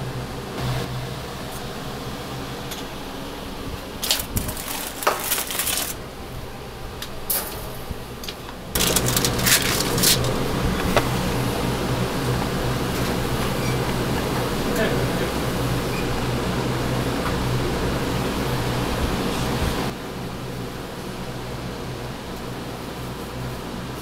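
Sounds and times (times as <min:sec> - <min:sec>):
kitchen ventilation hum: 0:00.0 - 0:24.0
aluminium foil crinkling: 0:04.0 - 0:06.0, 0:08.7 - 0:10.6.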